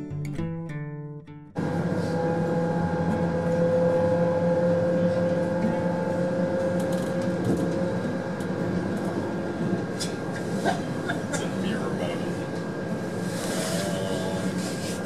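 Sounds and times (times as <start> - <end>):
train motor whine: 1.6 - 10.4
train rolling rumble: 1.6 - 15.0.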